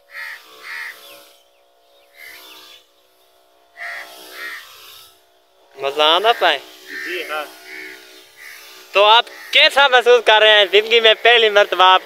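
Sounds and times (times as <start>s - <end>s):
crows cawing: 0.0s - 2.9s, 3.6s - 5.2s, 6.0s - 10.2s.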